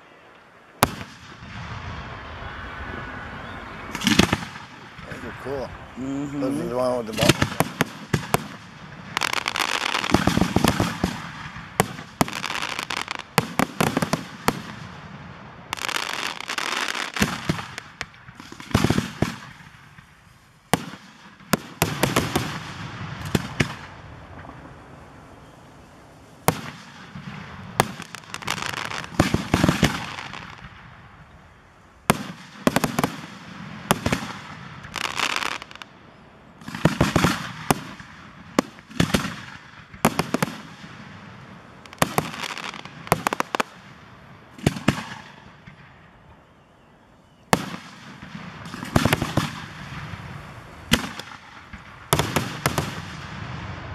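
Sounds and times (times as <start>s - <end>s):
rumble after firework bangs: 0.7s - 12.5s, 17.2s - 46.6s
firework shells bursting: 15.7s - 35.9s, 47.5s - 53.9s.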